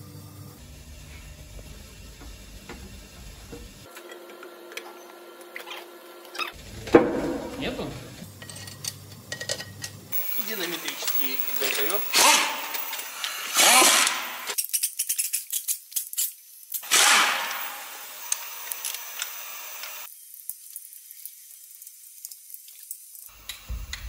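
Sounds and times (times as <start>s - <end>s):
pneumatic impact wrench: 10.1s - 14.6s, 16.8s - 20.1s.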